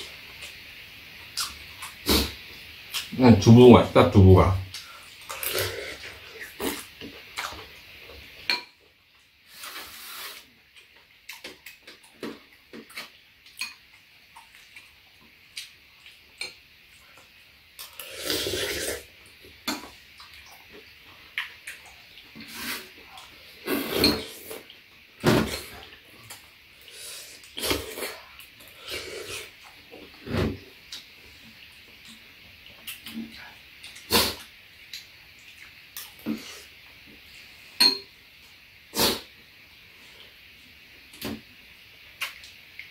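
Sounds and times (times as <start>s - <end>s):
spoons clinking against ceramic bowls: 37.8s - 38.1s.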